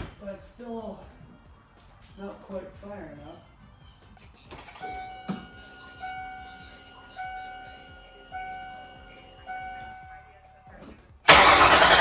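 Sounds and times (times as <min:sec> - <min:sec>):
car warning chime: 0:04.8 - 0:10.5.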